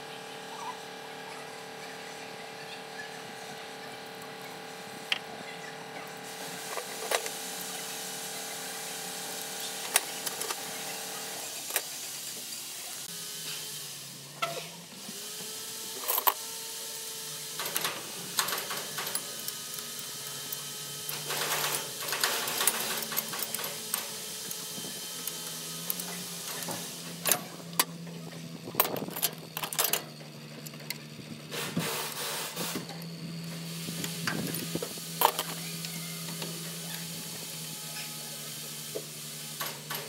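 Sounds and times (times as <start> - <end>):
hand tools clinking on metal: 16.0 - 16.4, 17.6 - 31.0.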